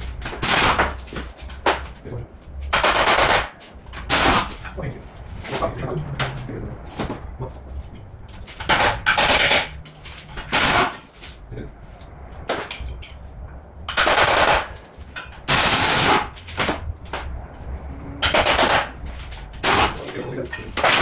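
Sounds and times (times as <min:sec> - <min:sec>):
pneumatic impact wrench hammering: 0:00.2 - 0:01.0, 0:02.7 - 0:04.6, 0:08.6 - 0:09.8, 0:10.4 - 0:11.1, 0:13.9 - 0:16.8.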